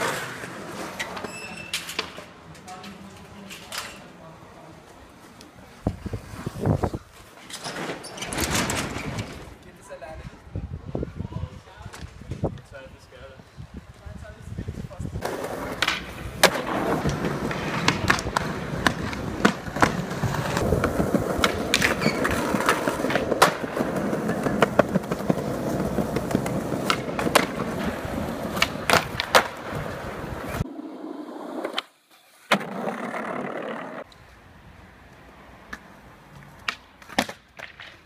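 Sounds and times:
skateboard wheels rolling on pavement: 0:00.0 - 0:03.4, 0:04.2 - 0:38.0
skateboard clacks: 0:15.2 - 0:30.7.

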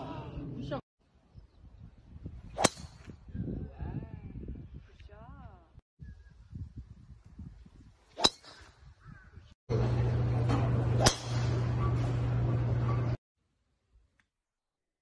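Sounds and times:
golf club striking ball: 0:02.6 - 0:03.1, 0:10.4 - 0:11.7
steady low hum: 0:09.7 - 0:13.2.

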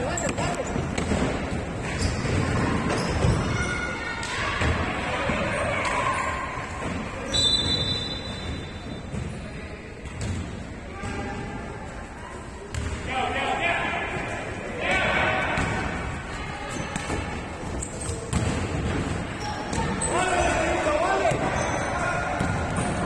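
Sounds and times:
sneaker squeaks: 0:00.0 - 0:04.0, 0:05.9 - 0:11.4, 0:16.6 - 0:23.0
basketball bouncing on court: 0:10.0 - 0:11.1, 0:12.7 - 0:13.0, 0:18.0 - 0:20.0.

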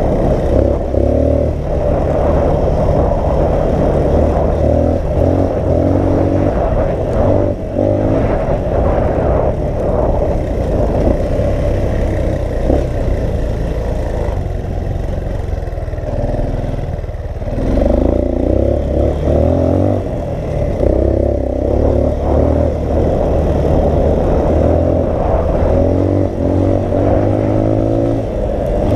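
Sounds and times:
wind buffeting microphone: 0:00.0 - 0:28.9
dirt bike engine revving: 0:17.4 - 0:28.9.

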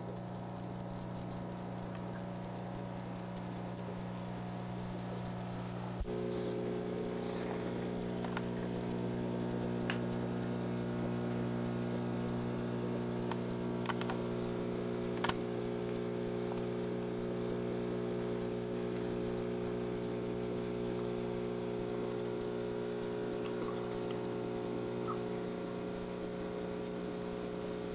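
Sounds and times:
aquarium filter bubbling: 0:00.0 - 0:27.9
steady low hum: 0:00.0 - 0:27.9.

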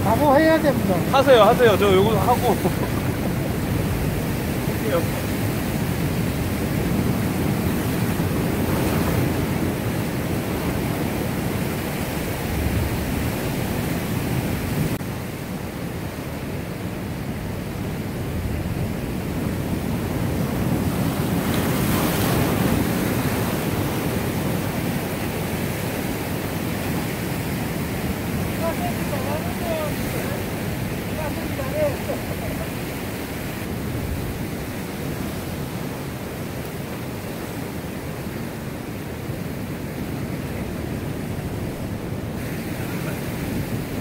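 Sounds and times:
wind buffeting microphone: 0:00.0 - 0:15.0, 0:16.4 - 0:36.4
surf breaking over rocks: 0:00.0 - 0:15.7, 0:18.0 - 0:44.0.

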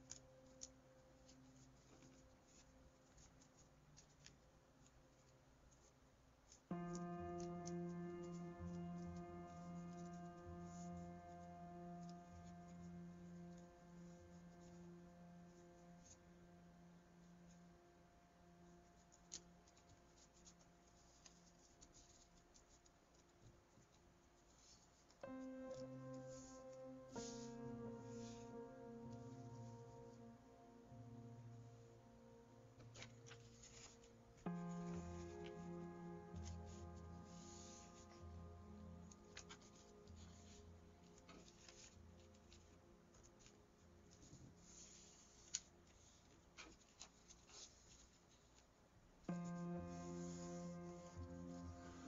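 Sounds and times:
paper rustling and ticking: 0:00.0 - 0:16.3, 0:18.6 - 0:30.3, 0:32.7 - 0:52.0
faint steady hum: 0:00.0 - 0:52.0
paper crinkling and creasing: 0:32.8 - 0:35.6, 0:38.9 - 0:48.7.

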